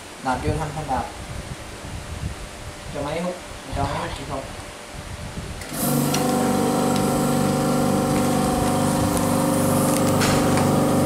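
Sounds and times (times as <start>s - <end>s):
vacuum pump motor running: 5.6s - 11.0s.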